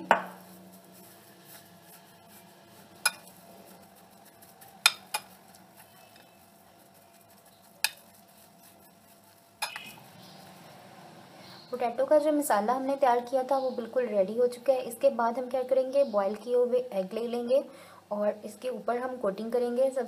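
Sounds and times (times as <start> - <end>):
spoon stirring mashed potato: 0.2 - 11.1
spoon scraping bowl: 0.8 - 10.7.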